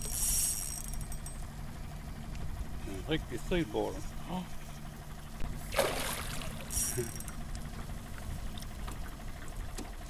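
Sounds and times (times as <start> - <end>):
outboard motor idling: 0.0 - 10.0
rushes of water noise: 5.6 - 7.0.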